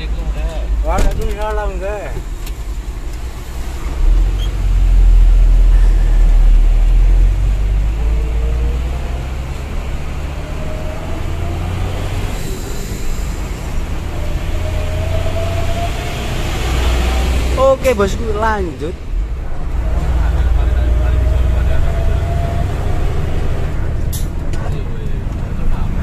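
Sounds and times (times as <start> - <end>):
truck engine low rumble: 19.0 - 26.0.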